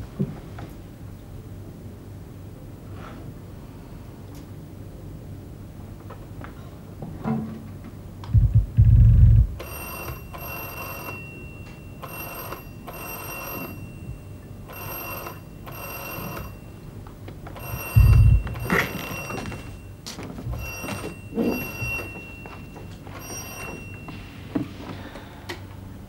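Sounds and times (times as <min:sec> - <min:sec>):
heavy low thuds: 0:08.3 - 0:09.6, 0:18.0 - 0:18.8
telephone ringing: 0:09.6 - 0:24.4.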